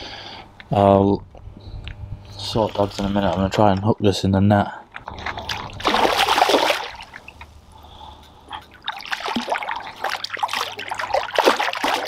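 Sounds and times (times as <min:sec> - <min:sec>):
fish splashing in water: 0:05.0 - 0:07.6, 0:08.6 - 0:12.0.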